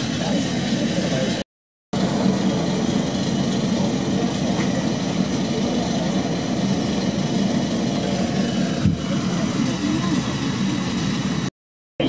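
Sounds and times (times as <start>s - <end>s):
airplane cabin hum: 2.0s - 11.5s.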